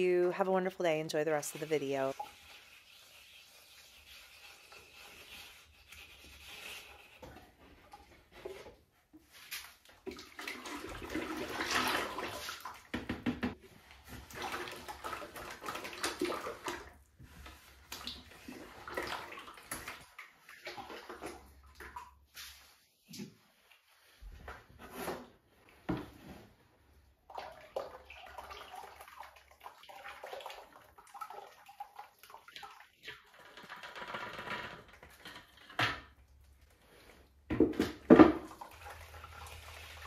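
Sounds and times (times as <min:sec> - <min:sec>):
liquid sloshing and splashing: 0:09.3 - 0:13.0, 0:13.7 - 0:22.6, 0:27.2 - 0:40.0.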